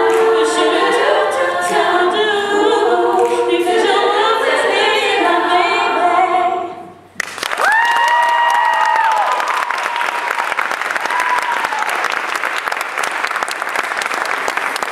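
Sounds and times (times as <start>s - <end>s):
women singing a cappella: 0.0s - 7.1s
applause: 7.2s - 14.9s
rising whoops: 7.5s - 12.1s.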